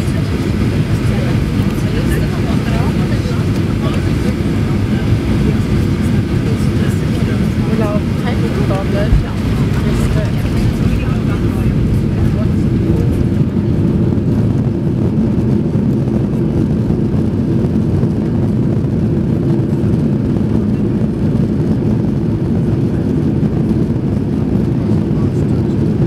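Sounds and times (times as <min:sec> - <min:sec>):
jet engines roaring: 0:00.0 - 0:26.0
wheels rumbling on runway: 0:00.0 - 0:26.0.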